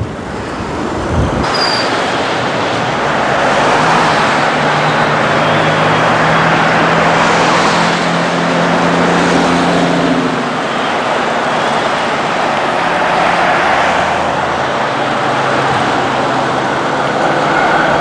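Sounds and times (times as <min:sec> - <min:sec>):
wind rumbling on microphone: 0:00.0 - 0:03.7
passing cars traffic noise: 0:00.0 - 0:18.0.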